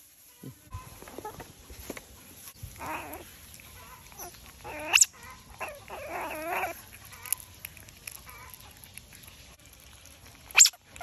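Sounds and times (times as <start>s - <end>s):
otter squealing: 2.8s - 3.2s.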